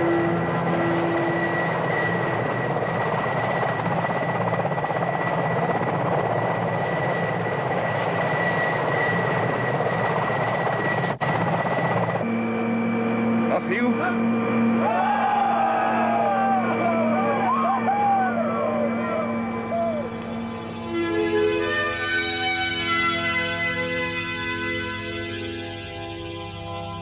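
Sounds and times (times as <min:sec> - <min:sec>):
low cabin hum: 0:00.0 - 0:21.1
helicopter engine and rotor: 0:00.0 - 0:27.0
high turbine whine: 0:00.0 - 0:27.0.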